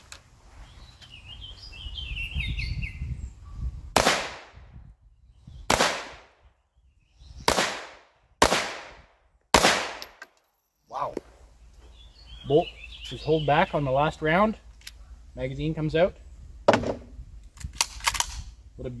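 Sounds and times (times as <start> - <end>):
pistol shots: 4.0 - 4.6, 5.7 - 6.3, 7.5 - 10.2.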